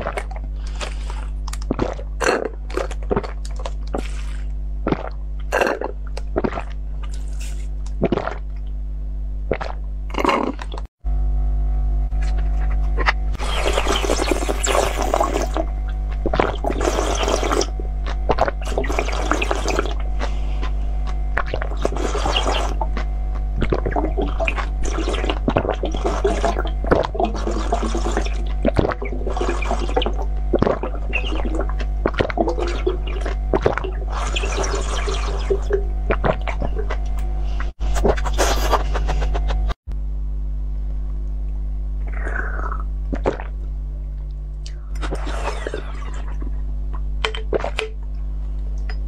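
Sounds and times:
slurping and gulping liquid: 0:00.0 - 0:08.7, 0:09.5 - 0:10.9, 0:12.2 - 0:39.6, 0:42.0 - 0:43.6, 0:44.7 - 0:46.6, 0:47.2 - 0:48.0
steady low hum: 0:00.0 - 0:49.0.

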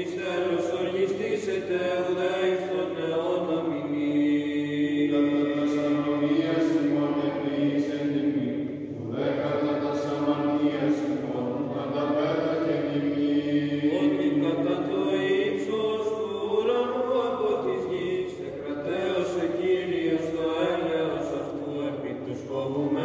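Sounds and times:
voices chanting slow melody: 0:02.5 - 0:23.0
steady low drone: 0:08.3 - 0:14.6.

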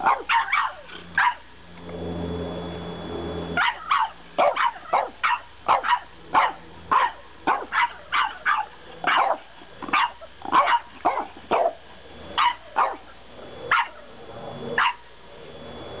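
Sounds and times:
puppy yapping: 0:00.0 - 0:01.5, 0:03.6 - 0:11.8, 0:12.4 - 0:13.0, 0:13.7 - 0:14.1, 0:14.8 - 0:15.0.

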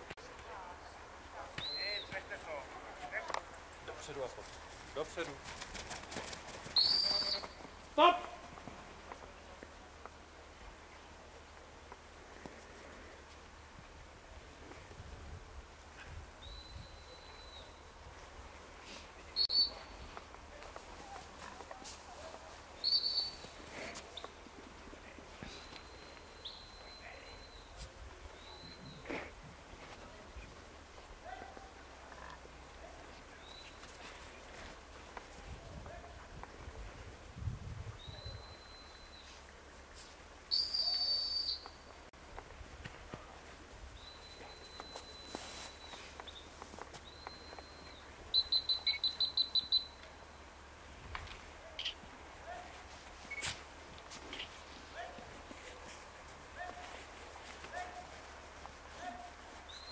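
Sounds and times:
high-pitched dog whistle blasts: 0:40.5 - 0:41.6.

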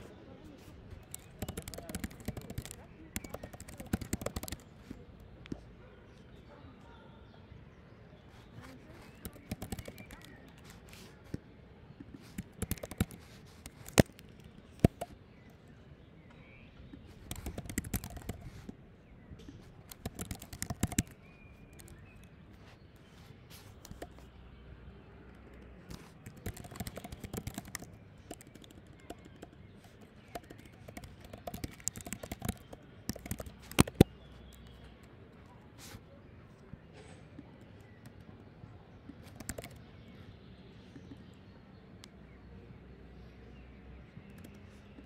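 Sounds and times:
computer keyboard typing: 0:00.9 - 0:04.9, 0:09.0 - 0:11.4, 0:12.0 - 0:15.1, 0:17.1 - 0:18.7, 0:19.7 - 0:22.3, 0:23.5 - 0:24.3, 0:25.4 - 0:34.8, 0:39.2 - 0:39.8.

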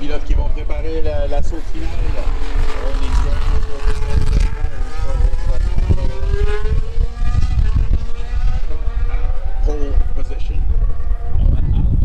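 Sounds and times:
racing car engine accelerating: 0:01.3 - 0:12.0.

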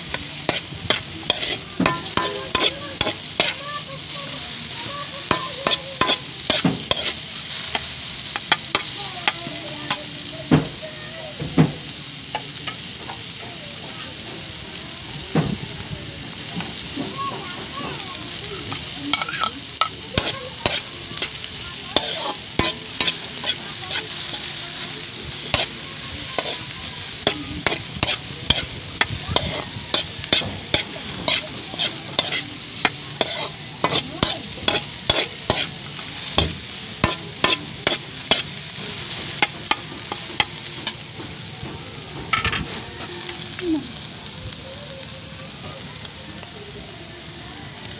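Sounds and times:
metal spoon scraping a wok: 0:00.0 - 0:04.4, 0:05.1 - 0:10.1, 0:18.6 - 0:41.4
food sizzling in oil: 0:00.0 - 0:47.9.

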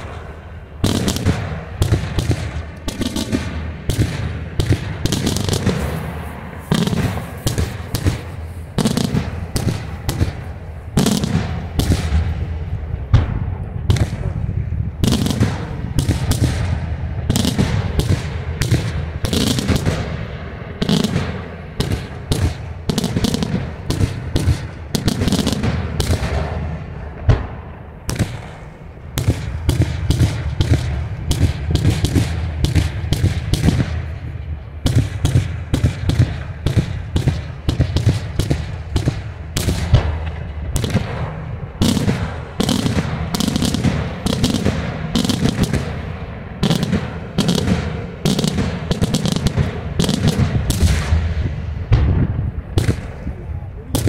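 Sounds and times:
fireworks bursting: 0:00.0 - 0:54.0
low rumble of echoing booms: 0:00.0 - 0:54.0.

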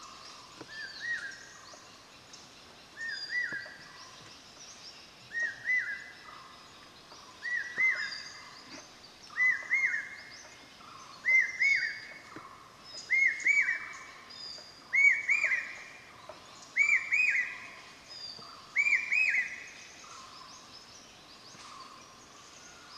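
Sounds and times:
background hiss: 0:00.0 - 0:22.9
bird whistled call: 0:07.4 - 0:08.4, 0:09.4 - 0:10.2, 0:11.2 - 0:12.2, 0:13.1 - 0:14.1, 0:14.9 - 0:15.9, 0:16.8 - 0:17.8, 0:18.7 - 0:19.8.

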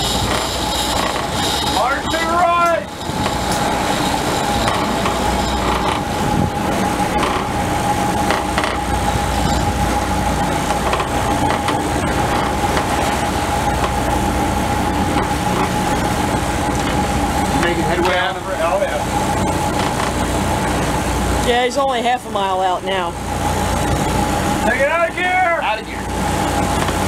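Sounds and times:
boat engine running: 0:00.0 - 0:27.0
steady whine: 0:00.0 - 0:27.0
wake rushing: 0:00.0 - 0:27.0.

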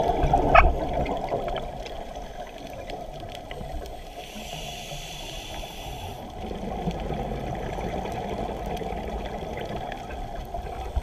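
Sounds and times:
exhaled bubbles underwater: 0:00.0 - 0:03.9, 0:06.2 - 0:11.0
hissing regulator inhalation: 0:04.0 - 0:06.4.

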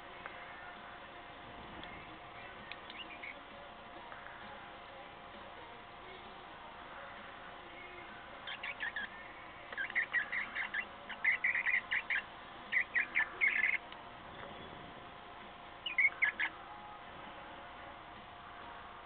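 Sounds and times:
cockatiel chirping: 0:02.9 - 0:03.4, 0:08.5 - 0:09.1, 0:09.8 - 0:13.8, 0:15.8 - 0:16.6.

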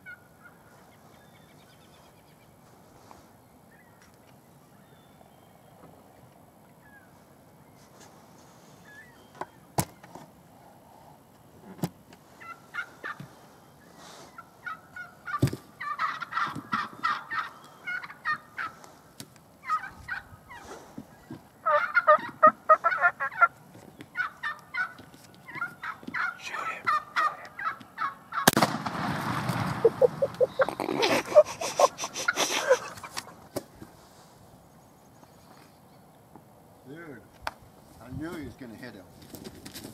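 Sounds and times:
turkeys gobbling: 0:00.0 - 0:00.6, 0:12.4 - 0:13.5, 0:14.3 - 0:18.9, 0:19.6 - 0:20.8, 0:21.6 - 0:28.6, 0:29.2 - 0:33.5.

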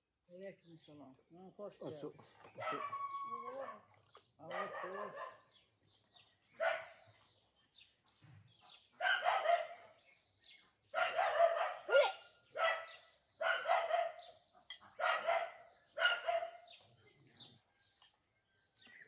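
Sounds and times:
bird calling: 0:01.8 - 0:05.4
dog barking: 0:02.6 - 0:05.5, 0:06.6 - 0:07.0, 0:09.0 - 0:10.0, 0:10.9 - 0:16.8.

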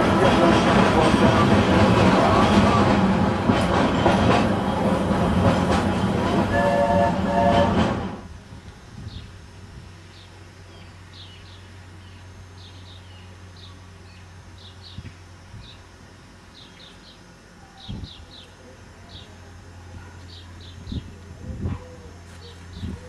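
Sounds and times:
steady low hum: 0:00.0 - 0:23.0
songbirds chirping: 0:10.0 - 0:23.0.

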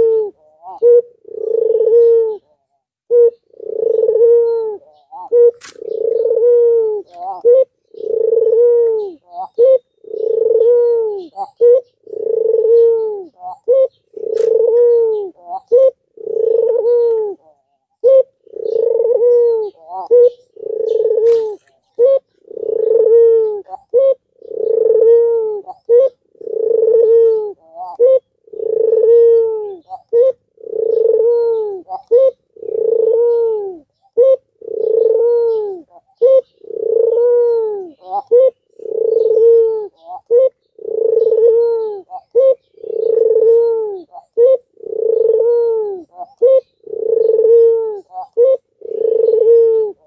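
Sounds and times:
dove cooing: 0:00.0 - 0:50.0.

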